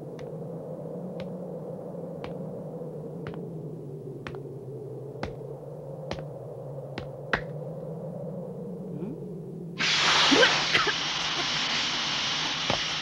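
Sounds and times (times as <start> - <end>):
loud rushing hiss: 9.8 - 13.0.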